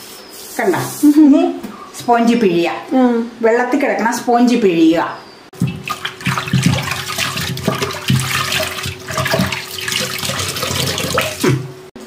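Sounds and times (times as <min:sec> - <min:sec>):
water dripping into pot: 0:05.6 - 0:11.6
water sloshing in metal pot: 0:05.6 - 0:11.7.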